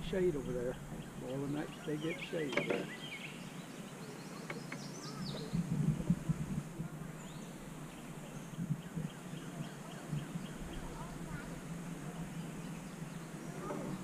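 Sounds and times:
river ambience: 0:00.0 - 0:14.0
faint bird chirps: 0:00.4 - 0:05.9
soft knocks and rustling in canoe: 0:02.4 - 0:03.0.

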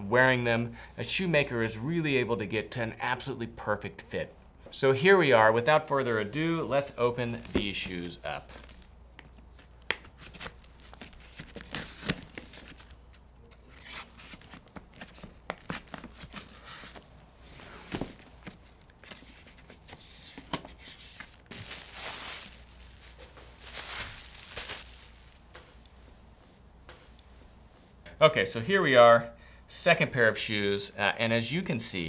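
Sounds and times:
paper and cardboard rustling: 0:07.3 - 0:26.0.

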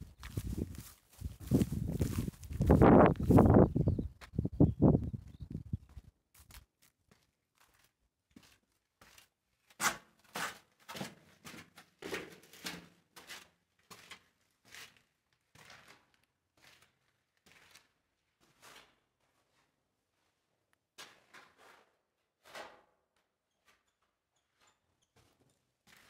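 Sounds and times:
footsteps crunching on gritty concrete: 0:00.0 - 0:03.6, 0:06.3 - 0:09.4.

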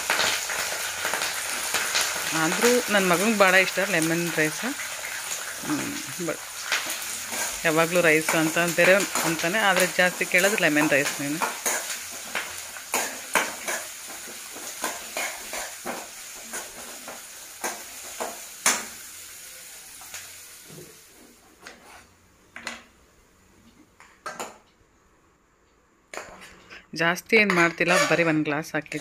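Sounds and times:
food sizzling in hot oil: 0:00.0 - 0:21.4
spoon scraping metal pan: 0:26.2 - 0:29.0.

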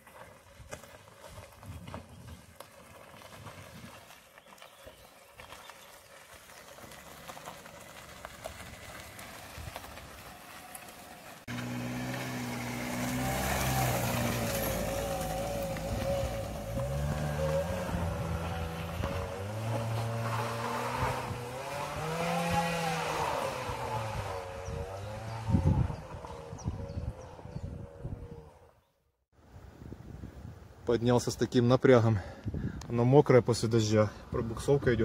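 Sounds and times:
wheels slipping in mud: 0:00.0 - 0:28.5
car engine straining and revving: 0:07.9 - 0:28.7.

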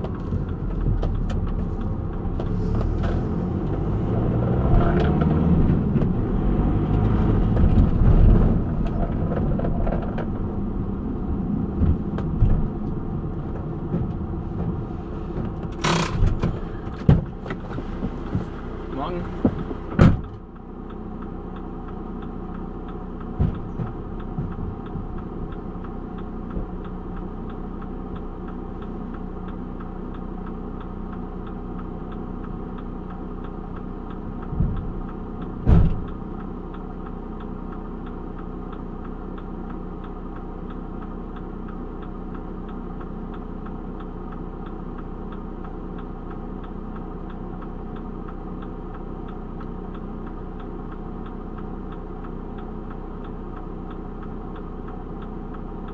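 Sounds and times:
van engine idling: 0:00.0 - 0:55.9
faint regular ticking: 0:00.1 - 0:17.4, 0:18.2 - 0:55.9
short thumps: 0:06.9 - 0:20.4, 0:34.5 - 0:36.2.

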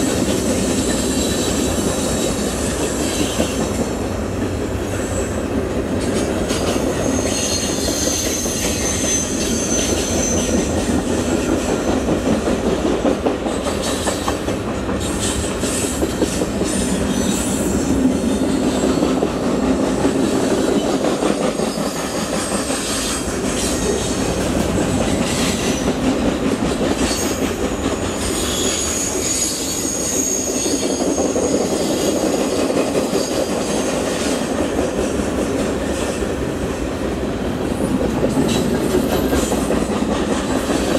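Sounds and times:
freight train wheels rumbling: 0:00.0 - 0:40.9
high wheel squeal: 0:06.6 - 0:10.8, 0:21.5 - 0:24.0, 0:28.2 - 0:32.2.

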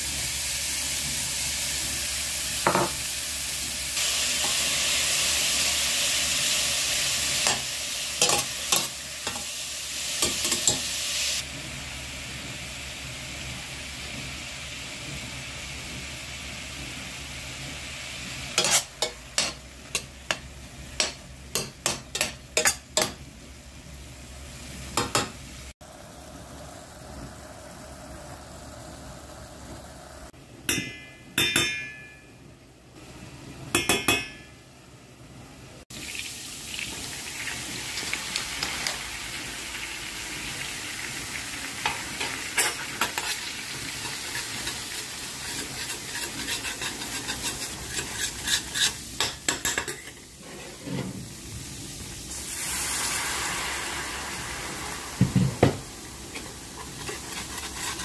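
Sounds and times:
flour and butter sizzling: 0:00.0 - 0:34.8, 0:35.7 - 0:58.0
metal spoon scraping pot: 0:18.6 - 0:20.1, 0:42.6 - 0:51.2, 0:56.4 - 0:58.0.

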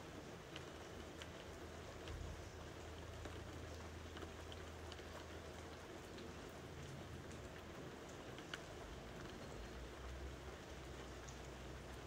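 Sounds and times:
rain hiss: 0:00.0 - 0:12.0
raindrops ticking: 0:00.0 - 0:12.0.

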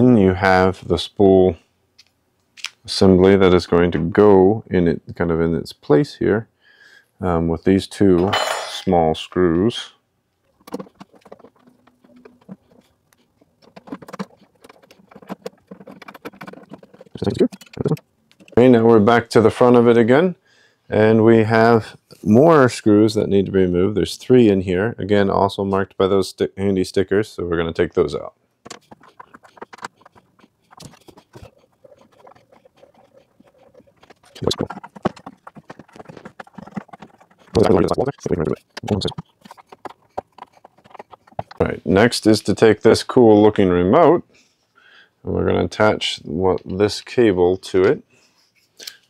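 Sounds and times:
small metal parts clicking and tapping: 0:10.6 - 0:18.6.

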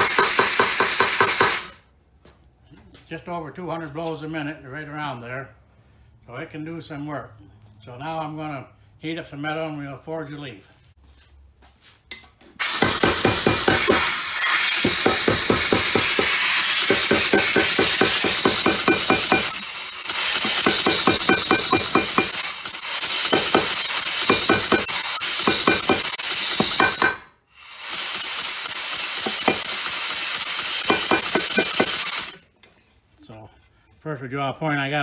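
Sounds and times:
power hammer pounding hot steel: 0:00.0 - 0:01.8, 0:12.6 - 0:32.4.

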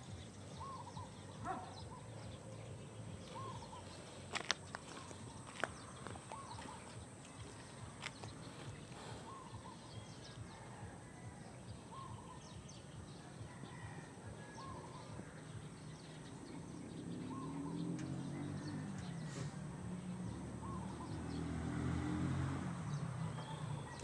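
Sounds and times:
low engine hum: 0:00.0 - 0:13.5, 0:14.2 - 0:24.0
faint ticks: 0:18.0 - 0:18.2.

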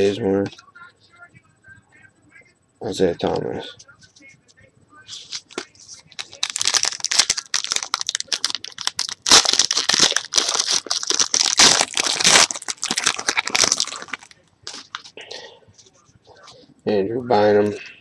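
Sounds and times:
foil wrappers crackling: 0:05.1 - 0:15.2.

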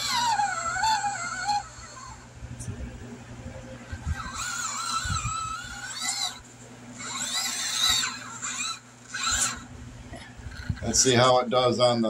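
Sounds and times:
toy car electric motor whining: 0:00.0 - 0:02.3, 0:03.9 - 0:09.7, 0:10.5 - 0:11.1.

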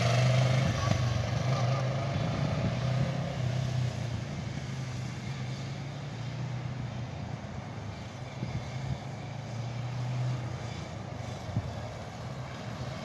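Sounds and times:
motorcycle engine riding away: 0:00.0 - 0:06.8.

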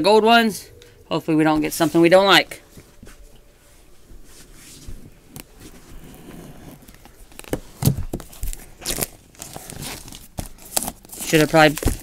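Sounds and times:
cardboard box rustling and ripping: 0:05.7 - 0:12.0.

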